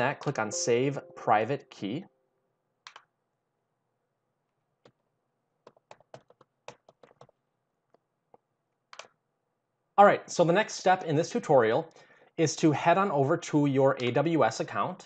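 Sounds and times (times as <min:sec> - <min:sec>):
faint keyboard typing: 0:04.8 - 0:09.2.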